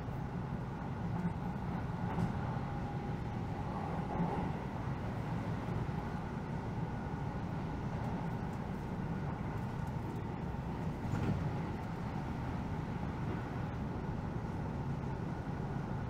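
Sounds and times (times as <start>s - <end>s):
train rumbling on track: 0.0s - 16.0s.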